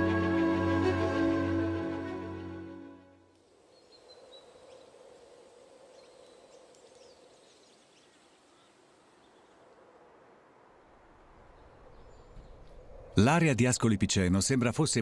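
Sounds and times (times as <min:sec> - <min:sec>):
bird chirps: 0:03.7 - 0:05.0.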